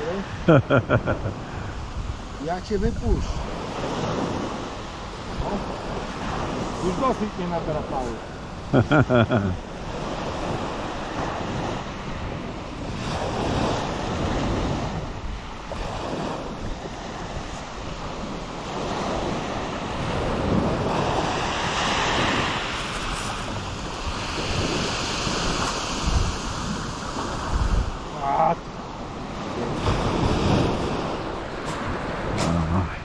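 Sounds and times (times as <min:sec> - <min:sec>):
wind buffeting microphone: 0:00.0 - 0:33.0
surf breaking on shingle beach: 0:12.8 - 0:28.2, 0:29.0 - 0:33.0.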